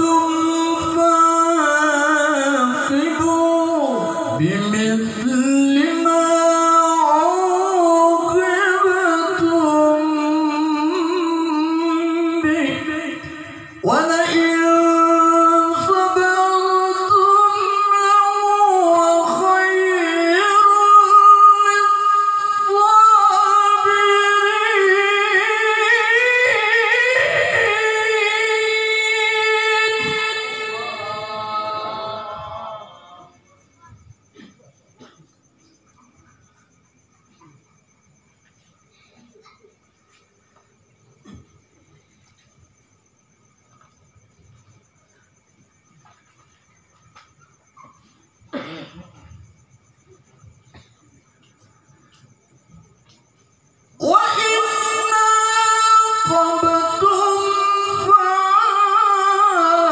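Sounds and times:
man reciting melodically: 0:00.0 - 0:33.4, 0:54.0 - 0:59.9.

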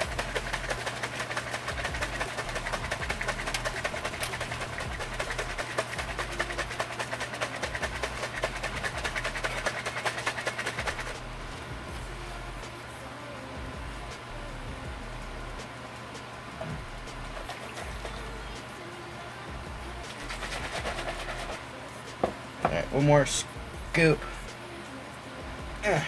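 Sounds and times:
shaker bottle being shaken: 0:00.0 - 0:11.6, 0:16.6 - 0:18.8, 0:20.0 - 0:21.6.

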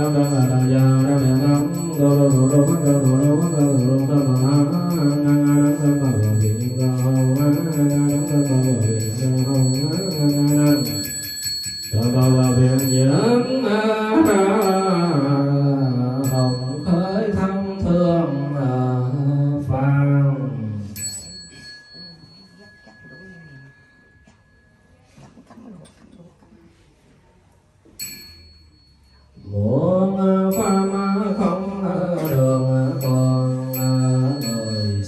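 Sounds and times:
person chanting through a microphone: 0:00.0 - 0:11.0, 0:12.0 - 0:21.0, 0:29.5 - 0:35.0
small bell ringing: 0:00.0 - 0:19.2, 0:20.9 - 0:25.2, 0:28.0 - 0:35.0.

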